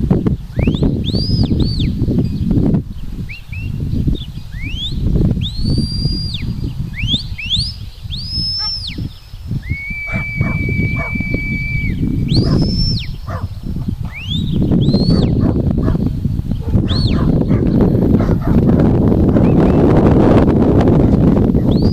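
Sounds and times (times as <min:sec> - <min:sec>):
high whistled calls: 0:00.2 - 0:18.1, 0:19.4 - 0:20.1, 0:21.6 - 0:21.9.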